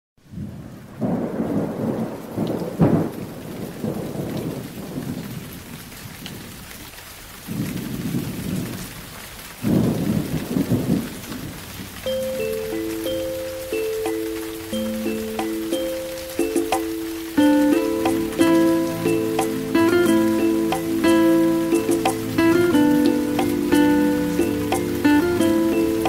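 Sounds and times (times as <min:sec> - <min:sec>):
steady rain: 0:00.2 - 0:26.0
thunder rolling: 0:00.3 - 0:05.7, 0:09.6 - 0:11.6
bell-like music notes: 0:12.1 - 0:26.0.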